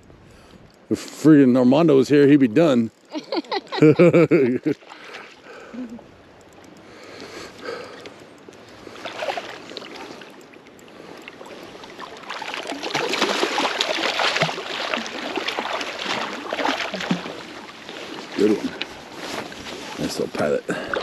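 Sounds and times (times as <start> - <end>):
water splashing: 3.8 - 5.7, 7.7 - 21.0.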